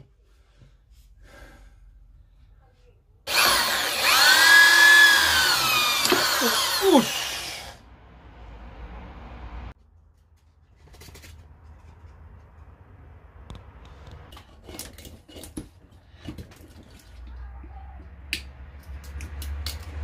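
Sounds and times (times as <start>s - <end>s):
knife carving wood: 3.3s - 7.7s.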